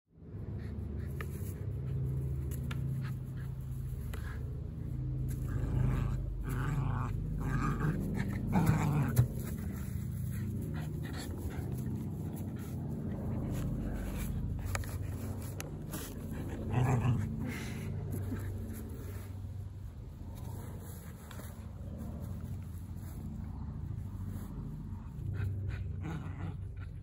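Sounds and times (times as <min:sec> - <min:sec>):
dog growling: 0:04.2 - 0:19.2, 0:24.8 - 0:27.0.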